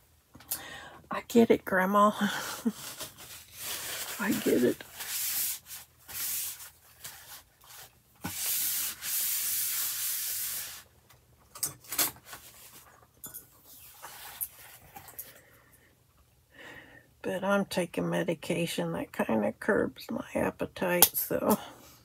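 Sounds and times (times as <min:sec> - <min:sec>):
paper towel rubbing paper: 0:02.3 - 0:10.9.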